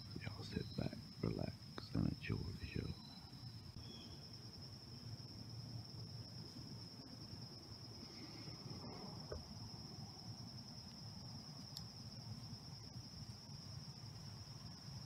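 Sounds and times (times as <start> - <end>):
insect trilling: 0.0 - 15.0
low rumble of woodland air: 0.0 - 15.0.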